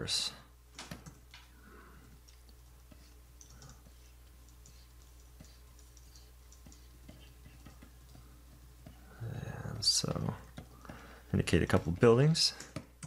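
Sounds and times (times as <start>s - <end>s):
low steady hum: 0.0s - 13.0s
computer keyboard clicks: 3.4s - 3.8s.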